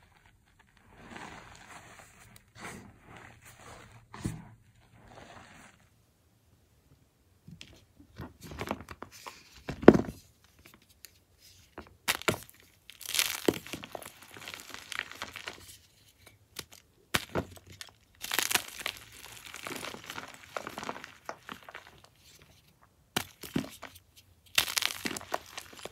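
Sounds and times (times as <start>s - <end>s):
chalk block crushed by hand: 23.1s - 25.9s.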